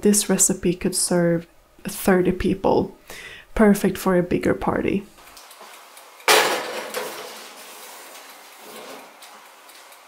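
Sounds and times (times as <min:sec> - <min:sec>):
metal pan clattering on rack: 0:06.3 - 0:07.5.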